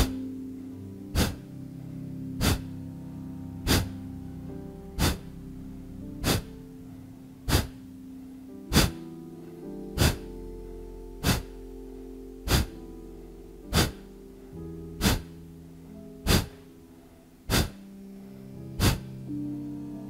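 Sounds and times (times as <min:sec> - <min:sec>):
soft background music: 0:00.0 - 0:20.0
forceful nasal exhalations: 0:01.1 - 0:01.4, 0:02.4 - 0:02.8, 0:03.6 - 0:04.0, 0:05.0 - 0:05.3, 0:06.2 - 0:06.6, 0:07.5 - 0:07.8, 0:08.7 - 0:09.0, 0:10.0 - 0:10.3, 0:11.2 - 0:11.6, 0:12.4 - 0:12.8, 0:13.7 - 0:14.0, 0:15.0 - 0:15.4, 0:16.2 - 0:16.6, 0:17.5 - 0:17.8, 0:18.8 - 0:19.2.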